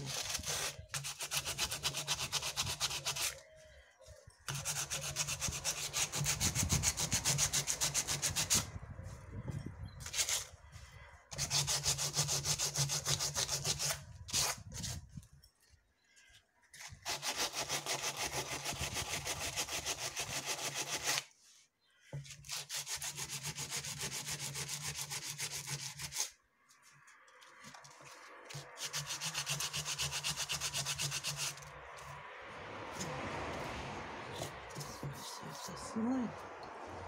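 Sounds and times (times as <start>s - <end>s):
sanding pad scraping cement: 0.0s - 3.5s, 4.5s - 8.7s, 11.3s - 15.1s, 16.8s - 21.5s, 22.3s - 27.0s, 27.6s - 32.2s, 34.3s - 35.8s.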